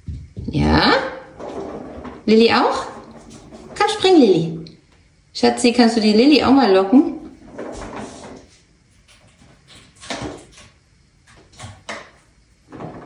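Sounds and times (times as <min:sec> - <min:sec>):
soft knocks and thumps: 0:00.0 - 0:00.6.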